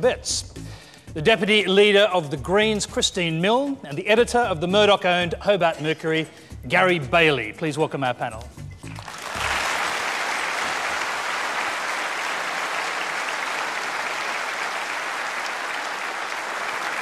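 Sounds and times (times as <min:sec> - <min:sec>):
studio audience applauding: 0:08.9 - 0:17.0.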